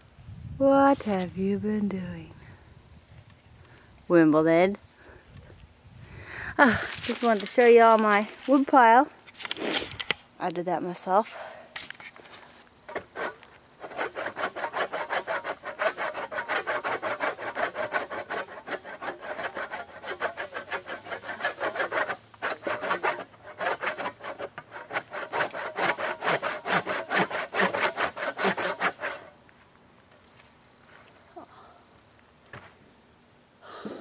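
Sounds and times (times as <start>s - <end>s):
hand saw cutting log: 12.9s - 29.4s.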